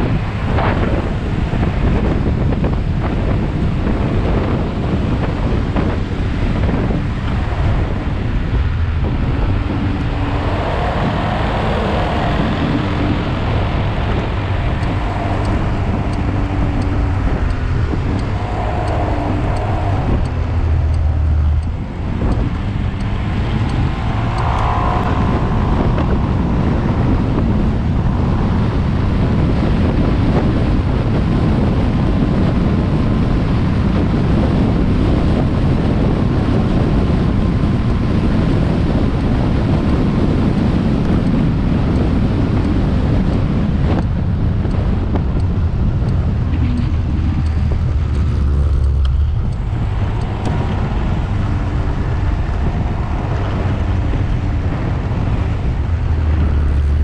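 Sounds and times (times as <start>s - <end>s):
scooter engine drone: 0.0s - 57.0s
wind rush and road noise: 0.0s - 57.0s.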